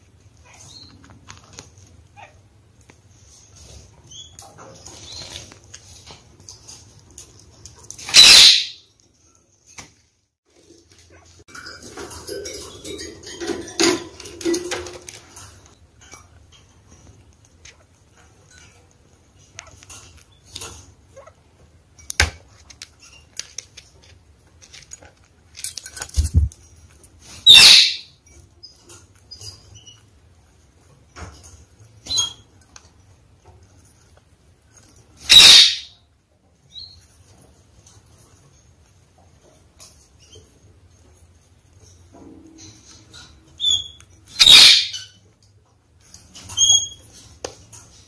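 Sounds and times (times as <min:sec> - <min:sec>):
parakeet chirping: 0:08.0 - 0:08.8, 0:27.4 - 0:28.1, 0:35.2 - 0:36.0, 0:43.6 - 0:45.2.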